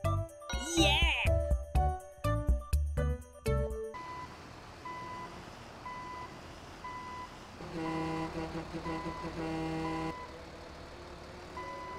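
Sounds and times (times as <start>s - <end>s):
truck reversing alarm beeping: 3.9s - 10.6s, 11.5s - 11.9s.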